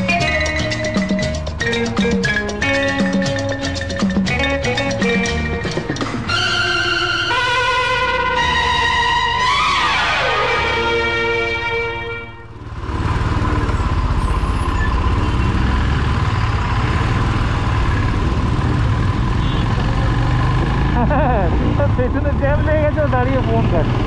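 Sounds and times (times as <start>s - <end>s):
background music: 0.0s - 12.6s
road rumble: 0.0s - 24.0s
vehicle engine running: 12.4s - 24.0s.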